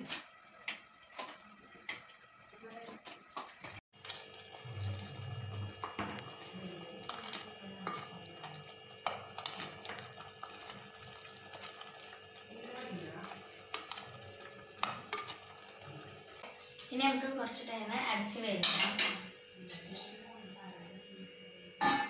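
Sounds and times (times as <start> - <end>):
curry bubbling in a pot: 0.0 - 16.4.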